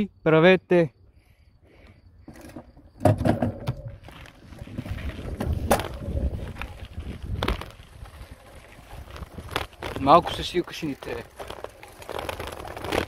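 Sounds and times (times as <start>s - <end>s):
bike rattling: 2.2s - 13.0s
wind buffeting microphone: 3.6s - 10.6s
bicycle tyres on gravel: 3.7s - 13.0s.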